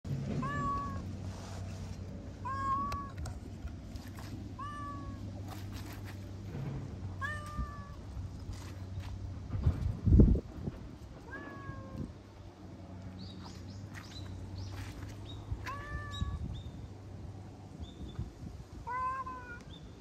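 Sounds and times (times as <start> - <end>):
cat meowing: 0.4 - 1.0, 2.4 - 3.2, 4.6 - 5.2, 7.2 - 8.0, 11.3 - 12.1, 15.7 - 16.4, 18.8 - 19.6.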